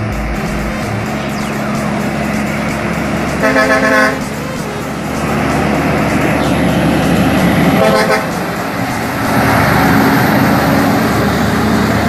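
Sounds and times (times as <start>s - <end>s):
truck diesel engine running: 0.0s - 12.0s
truck horn blasts: 1.8s - 9.8s.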